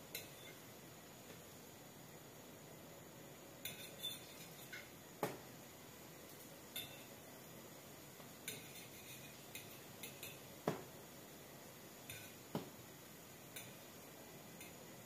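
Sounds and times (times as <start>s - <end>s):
pancakes frying in oil: 0.0s - 15.0s
fork tapping metal pot: 6.7s - 7.1s, 8.5s - 10.8s, 12.1s - 12.4s, 13.6s - 13.8s.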